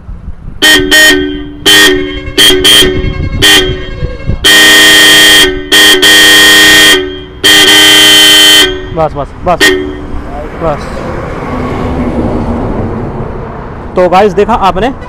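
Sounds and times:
motorcycle horns honking: 0.6 - 10.2.

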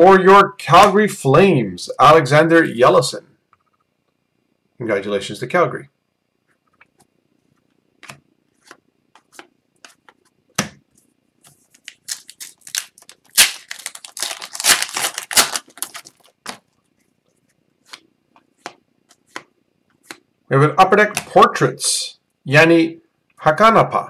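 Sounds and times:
cards clicking and slapping: 8.0 - 16.7, 17.9 - 20.2
foil pack tearing and crinkling: 11.6 - 16.6.

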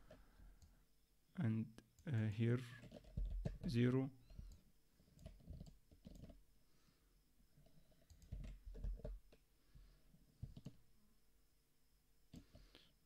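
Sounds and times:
computer mouse and keyboard clicks: 2.8 - 3.7, 5.2 - 6.4, 8.0 - 9.4, 10.4 - 10.8.

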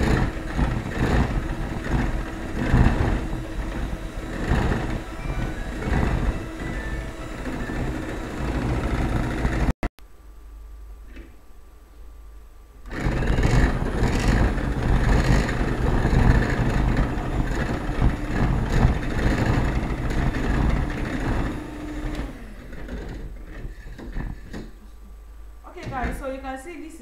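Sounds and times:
electric hand mixer whisking: 0.0 - 9.8, 12.9 - 24.6.

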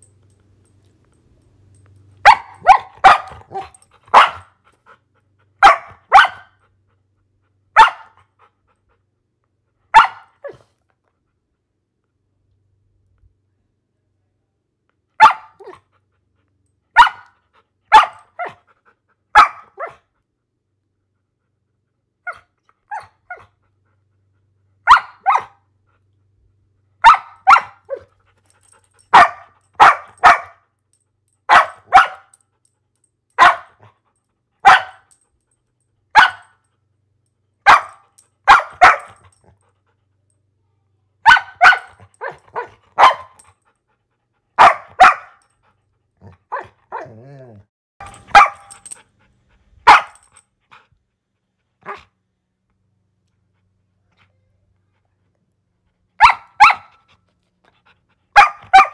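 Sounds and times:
dog barking: 2.2 - 4.5, 5.6 - 6.6, 7.7 - 8.2, 9.9 - 10.6, 15.2 - 15.8, 17.0 - 18.6, 19.4 - 20.0, 24.8 - 25.6, 27.0 - 28.1, 29.1 - 30.6, 31.5 - 32.3, 33.4 - 33.8, 34.6 - 35.1, 36.2 - 36.6, 37.6 - 39.3, 41.2 - 43.4, 44.6 - 45.4, 46.5 - 47.2, 48.0 - 48.9, 49.8 - 50.3, 51.8 - 52.1, 56.2 - 57.0, 58.3 - 58.9.

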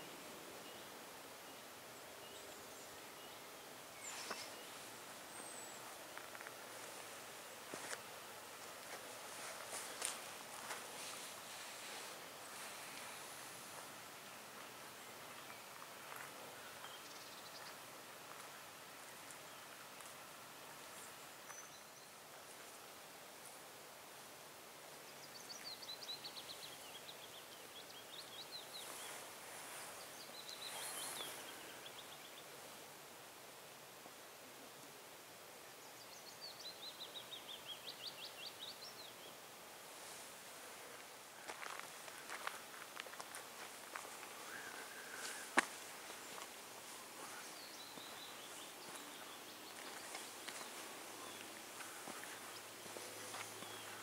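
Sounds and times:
outdoor background noise: 0.0 - 54.0
songbird singing: 0.0 - 54.0
faint footsteps on forest path: 4.0 - 23.7, 25.2 - 32.4, 38.9 - 54.0
soft rustle: 4.0 - 23.8, 28.2 - 32.9, 39.5 - 54.0.

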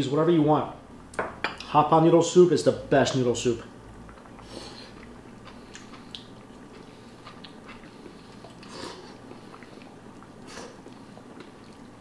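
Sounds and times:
mouth smacks and slurps: 4.0 - 12.0
person chewing: 4.0 - 12.0.

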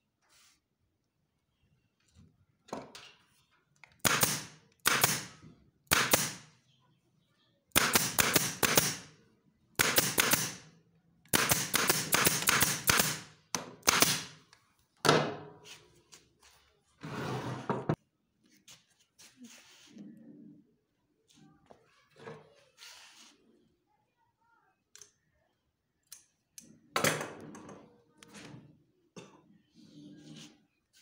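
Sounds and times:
staple gun shots: 4.0 - 6.5, 7.7 - 9.1, 9.8 - 10.6, 11.3 - 14.4.

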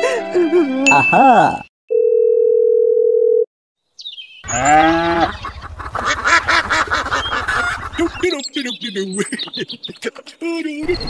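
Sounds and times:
steady telephone tone: 1.9 - 3.5
geese honking: 4.5 - 9.8.

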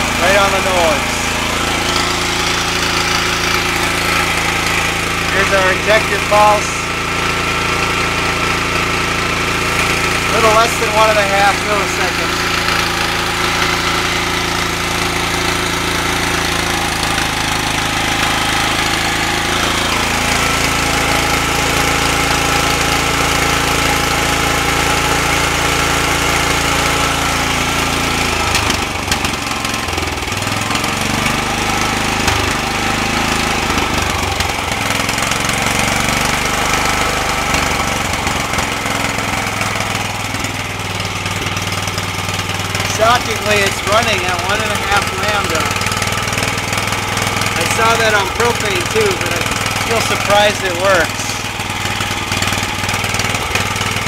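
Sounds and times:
small generator engine running: 0.0 - 54.0.

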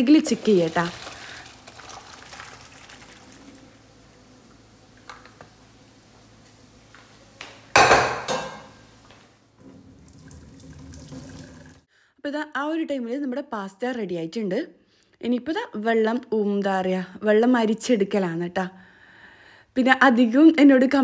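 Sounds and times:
water trickling into sink: 0.3 - 3.7, 9.6 - 11.9
pot clattering: 7.7 - 8.8.

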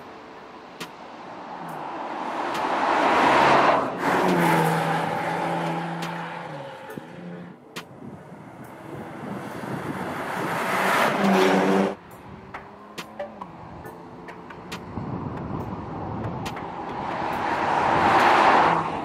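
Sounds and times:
car driving past: 1.0 - 7.6, 15.9 - 19.0.

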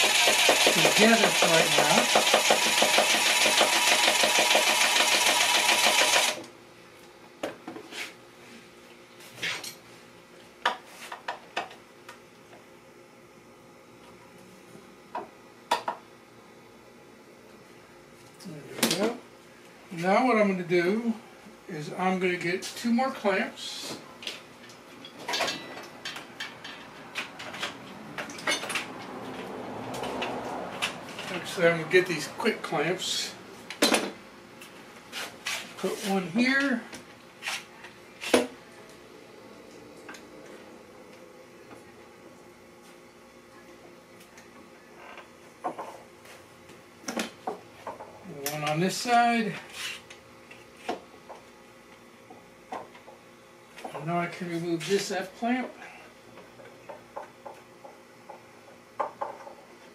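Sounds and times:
impact driver hammering: 0.0 - 6.4.

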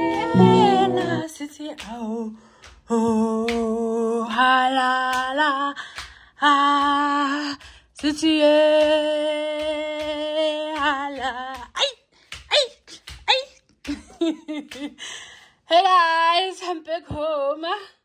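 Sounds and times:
woman singing long notes: 0.0 - 5.7.

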